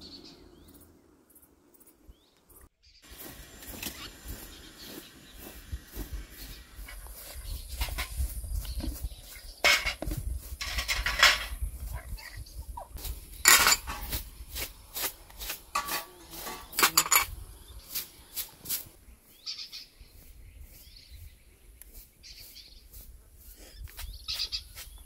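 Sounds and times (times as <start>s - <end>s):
bird chirping: 0.0s - 10.0s, 16.2s - 25.0s
pots and dishes clattering: 9.6s - 10.0s, 10.6s - 11.6s, 13.4s - 14.2s, 15.7s - 17.3s.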